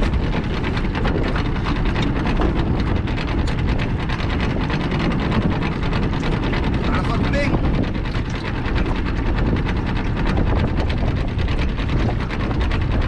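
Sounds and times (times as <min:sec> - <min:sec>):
outboard motor running: 0:00.0 - 0:13.0
wind noise on microphone: 0:00.0 - 0:13.0.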